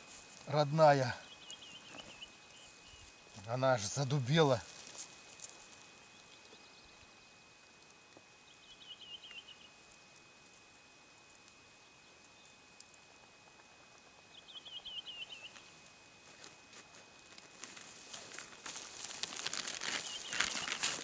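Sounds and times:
plastic bag crinkling: 0:17.4 - 0:21.0.

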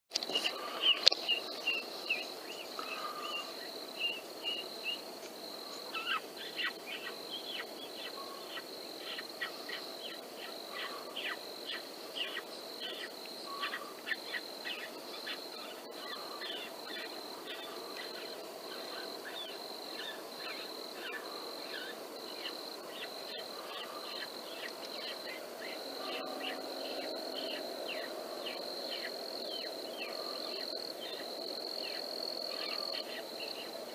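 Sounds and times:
high-pitched insect drone: 0:00.5 - 0:33.7.

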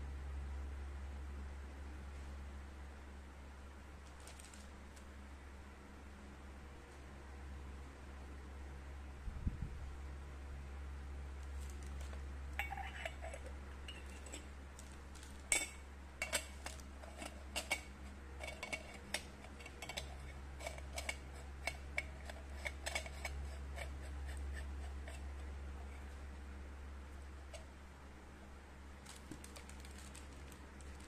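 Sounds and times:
metal parts clinking and scraping: 0:11.6 - 0:23.9, 0:29.0 - 0:31.0.

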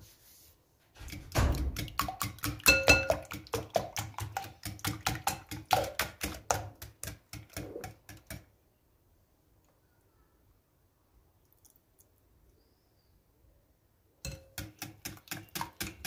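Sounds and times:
glass bowl ringing: 0:02.7 - 0:03.2.

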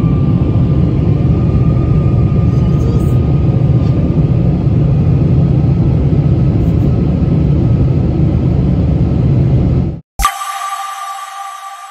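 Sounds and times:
faint steady whine: 0:10.2 - 0:11.9.

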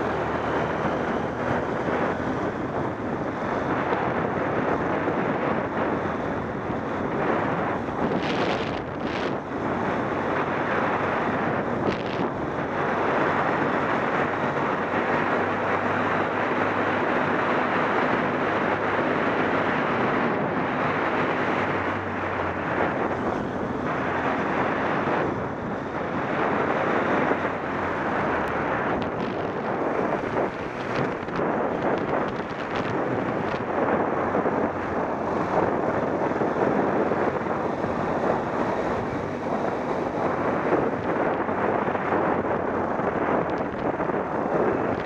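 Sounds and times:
motorcycle engine humming: 0:00.0 - 0:45.0
wind rushing over microphone: 0:00.0 - 0:45.0.

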